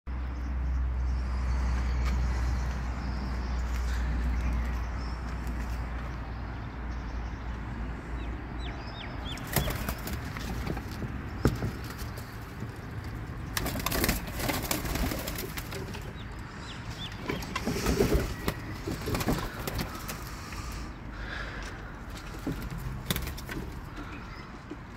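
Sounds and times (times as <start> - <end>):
pigeons flapping wings: 9.4 - 12.8, 13.4 - 16.2, 17.5 - 20.3.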